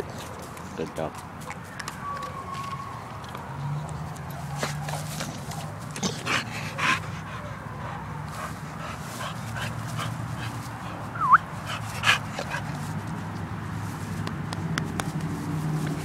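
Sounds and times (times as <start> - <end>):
dog whining: 11.1 - 11.4.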